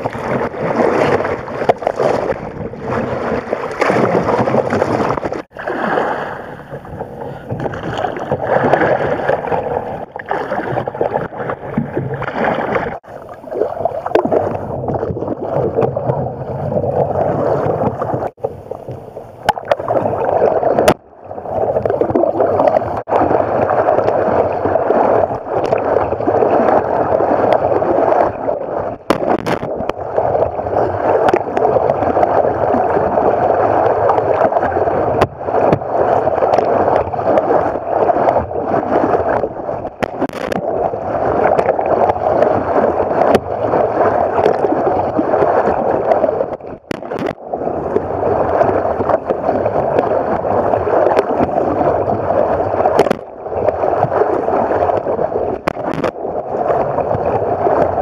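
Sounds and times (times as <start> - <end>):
paddle strokes splashing: 0.0 - 58.0
water rushing: 0.0 - 58.0.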